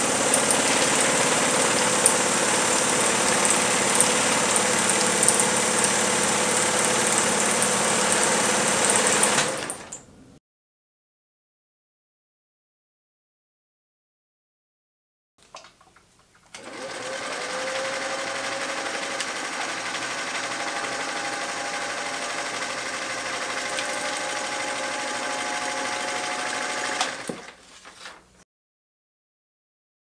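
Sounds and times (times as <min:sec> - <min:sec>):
sewing machine stitching whir: 0:00.0 - 0:10.0, 0:16.6 - 0:27.6.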